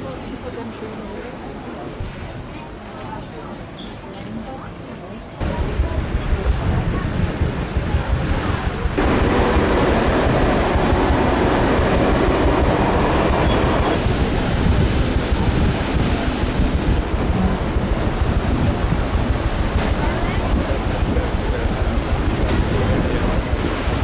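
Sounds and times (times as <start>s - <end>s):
water rushing along boat: 0.0s - 24.0s
wind buffeting microphone: 5.4s - 24.0s.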